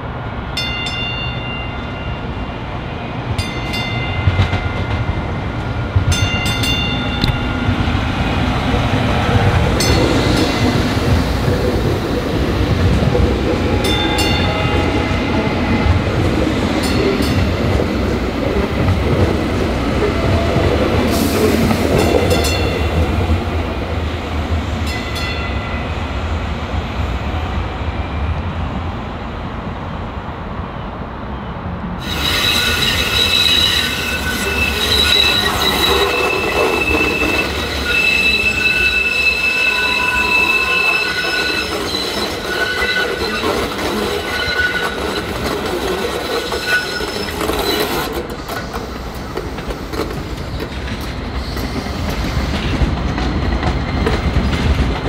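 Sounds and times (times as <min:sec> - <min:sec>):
train running noise: 0:00.0 - 0:55.0
wheels squealing on curve: 0:32.0 - 0:48.3.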